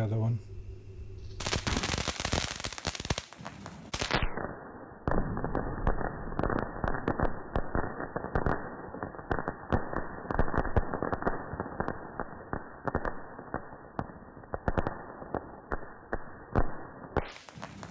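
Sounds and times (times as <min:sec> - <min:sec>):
firework sparks hissing: 0:01.2 - 0:04.4, 0:17.2 - 0:17.9
firework crackling and popping: 0:01.3 - 0:17.9.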